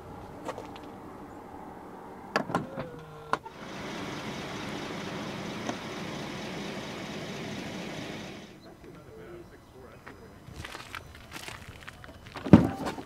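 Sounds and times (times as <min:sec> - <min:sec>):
boot lid latch clicks: 0:02.3 - 0:03.4.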